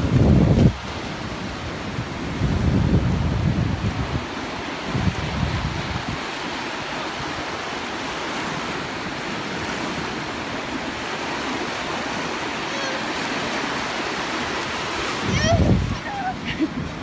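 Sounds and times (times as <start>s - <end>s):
small waves breaking on shore: 0.0s - 17.0s
wind buffeting microphone: 0.0s - 17.0s.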